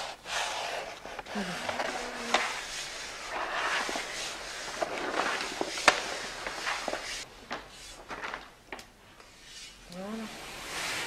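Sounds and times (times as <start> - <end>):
paper rustling and crinkling: 0.4 - 8.8.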